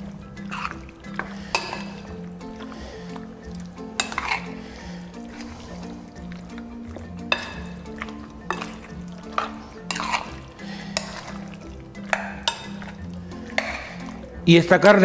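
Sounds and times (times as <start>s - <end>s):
background music: 0.0s - 15.0s
wet squelching of meat: 0.0s - 15.0s
spoon clinking against glass bowl: 0.4s - 2.0s, 3.1s - 4.6s, 7.2s - 14.2s.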